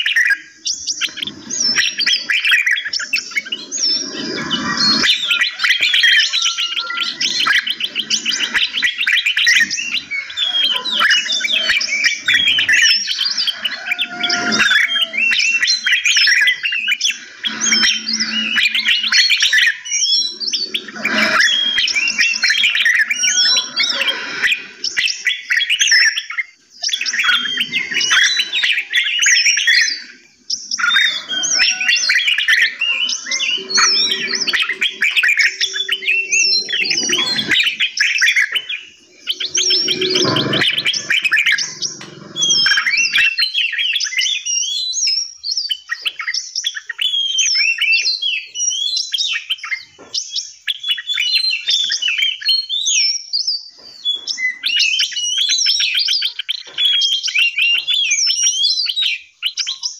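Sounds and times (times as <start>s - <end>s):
songbirds chirping and singing: 0.0s - 59.9s
low drone: 16.9s - 24.9s, 32.6s - 38.0s, 39.0s - 43.2s.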